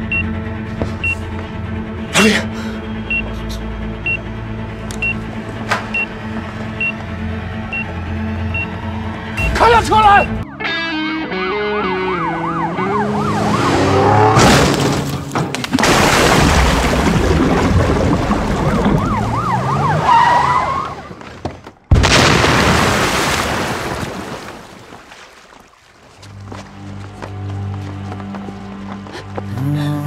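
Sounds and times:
police siren wailing: 7.0 - 14.4, 18.5 - 21.2.

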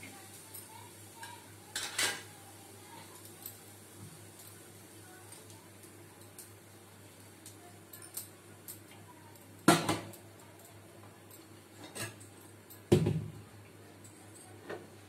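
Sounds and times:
steel utensils clanking: 11.8 - 12.8.

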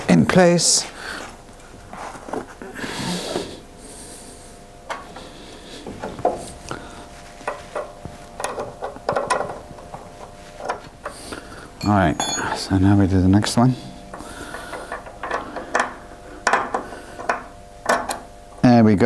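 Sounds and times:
faint hum: 0.0 - 19.0
metal clicks and knocks: 7.4 - 10.0, 14.5 - 18.2.

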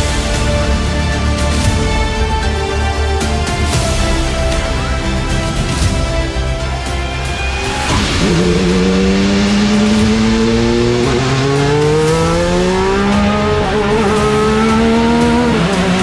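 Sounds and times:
race car engine accelerating: 7.6 - 16.0.

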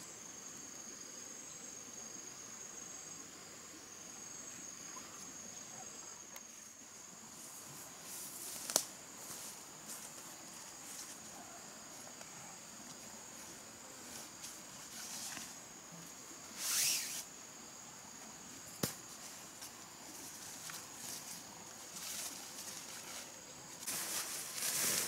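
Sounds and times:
high-pitched insect drone: 16.4 - 18.6
tarp rustling: 16.6 - 17.2, 21.9 - 25.0.

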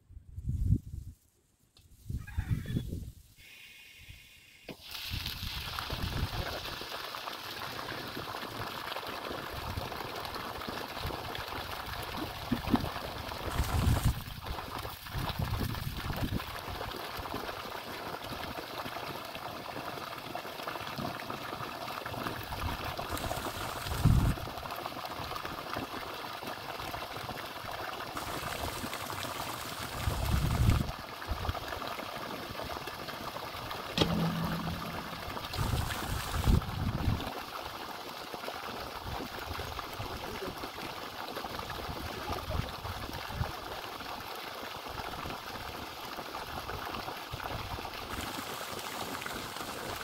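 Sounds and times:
water gushing from a pipe: 4.7 - 50.0
low rumbles: 34.0 - 36.0.

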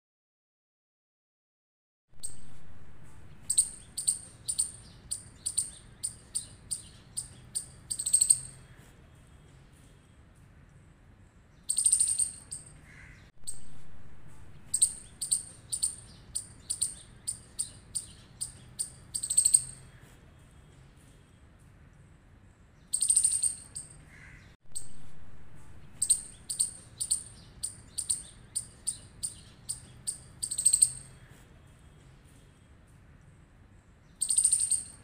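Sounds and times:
squirrel chirping alarm call: 3.3 - 8.7, 11.6 - 13.8, 14.6 - 19.9, 22.8 - 25.0, 25.8 - 31.3, 34.1 - 35.0
squirrel harsh call: 3.3 - 8.8, 11.7 - 13.8, 14.5 - 20.0, 22.9 - 31.4, 34.2 - 35.0.

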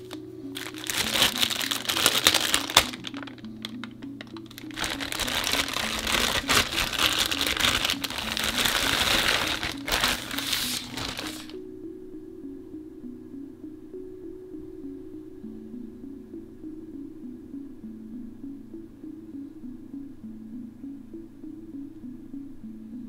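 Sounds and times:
plastic bag crinkling: 0.0 - 11.6
background music: 0.0 - 23.0.

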